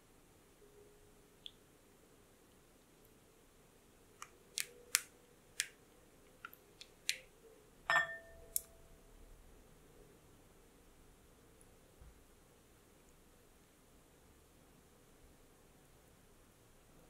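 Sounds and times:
spatula tapping glass bowl: 7.9s - 8.6s.

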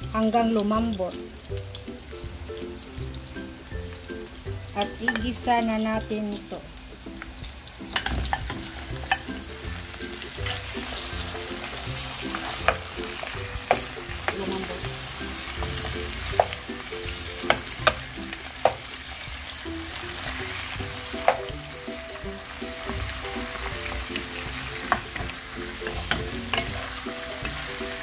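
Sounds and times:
meat sizzling in hot oil: 0.0s - 28.0s
wooden spatula knocking on pan: 12.4s - 14.4s, 15.6s - 16.7s, 17.4s - 18.8s, 21.1s - 21.6s.

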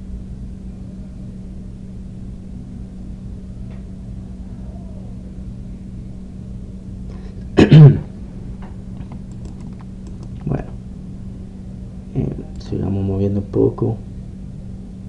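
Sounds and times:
steady low hum: 0.0s - 15.0s
person coughing: 7.2s - 8.1s.

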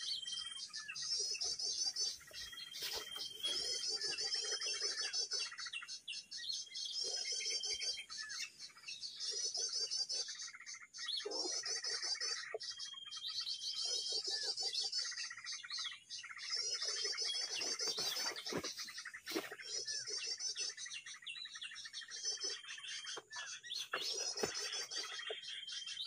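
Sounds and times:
small birds chirping and trilling: 0.0s - 26.0s.

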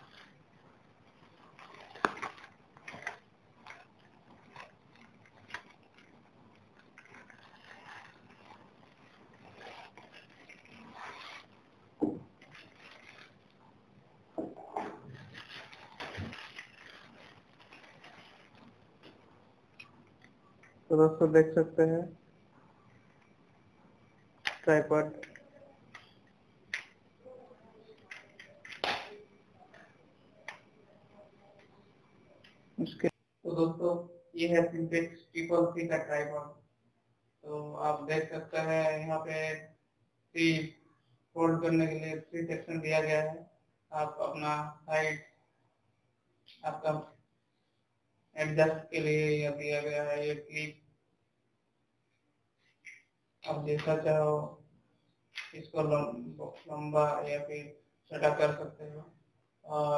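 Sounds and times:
cloth bag rustling: 0.0s - 13.6s, 14.7s - 19.4s
zip scraping: 1.2s - 11.6s.

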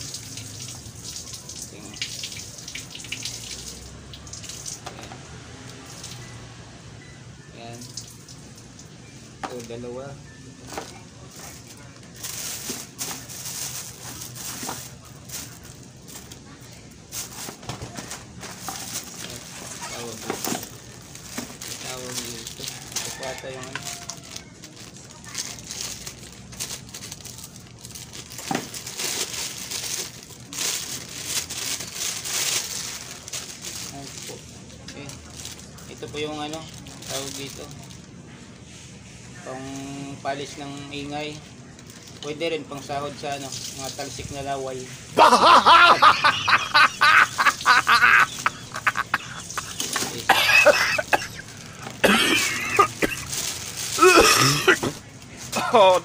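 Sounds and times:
plastic bag crinkling: 10.8s - 16.4s, 18.4s - 34.4s, 45.2s - 56.0s.

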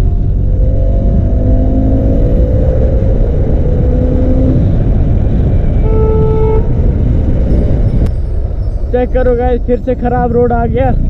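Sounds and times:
motorcycle engine accelerating: 0.0s - 8.6s.

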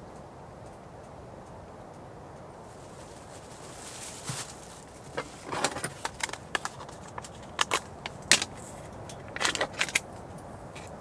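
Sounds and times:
plastic bottle crinkling: 2.8s - 10.0s.

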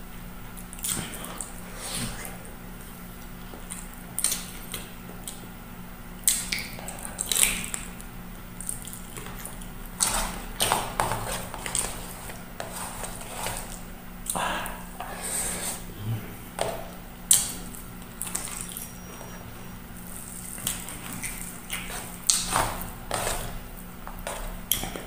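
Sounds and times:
wet chewing and smacking: 0.5s - 2.3s, 6.2s - 12.5s, 16.7s - 25.0s.

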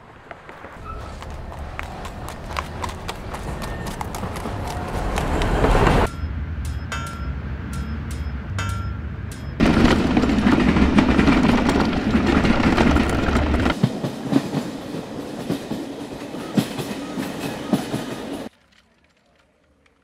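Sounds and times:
train rumbling on rails: 0.0s - 18.5s
wheel clacks over rail joints: 8.6s - 14.7s.

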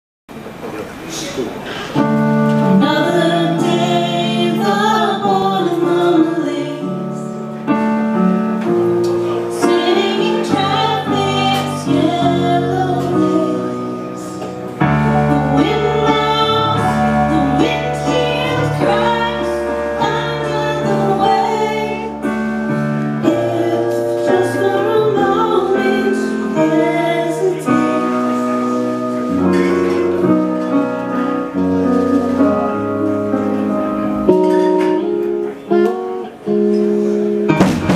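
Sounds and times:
keyboard chords: 0.3s - 37.9s
person singing: 2.0s - 7.4s, 9.3s - 33.2s
bass notes: 2.0s - 37.9s.

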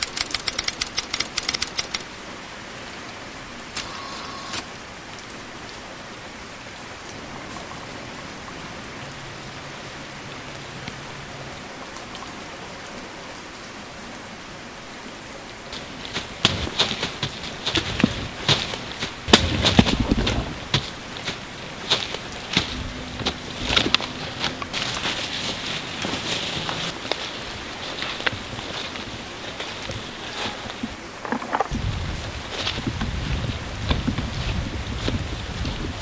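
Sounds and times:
rapid sharp clicks: 0.0s - 2.2s
rain on leaves and puddles: 0.0s - 36.0s
crunching footsteps in wet leaves: 15.4s - 36.0s.

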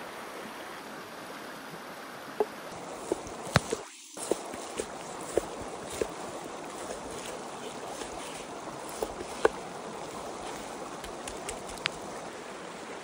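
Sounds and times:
river rushing: 0.0s - 13.0s
knife chopping on wooden board: 3.0s - 6.2s, 6.8s - 9.6s.

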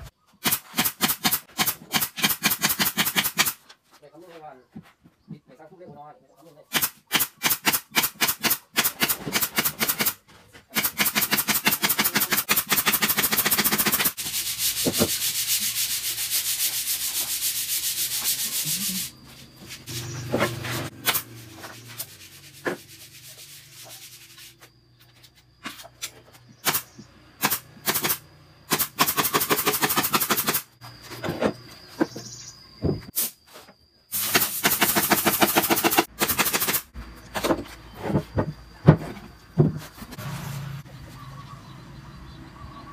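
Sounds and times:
pneumatic nail gun firing: 0.4s - 3.6s, 6.7s - 14.2s, 21.0s - 21.3s, 26.6s - 30.7s, 34.1s - 36.9s
steady air hiss: 34.1s - 35.6s.

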